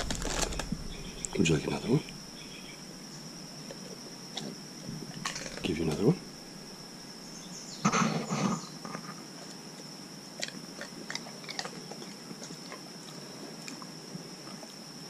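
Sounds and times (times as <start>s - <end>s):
dog crunching a chip: 10.4s - 13.9s.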